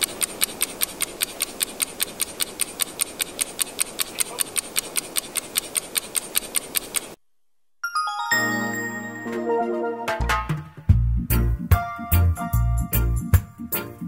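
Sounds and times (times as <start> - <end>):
fast mechanical clicking: 0.0 - 7.2
steady hiss: 0.0 - 7.2.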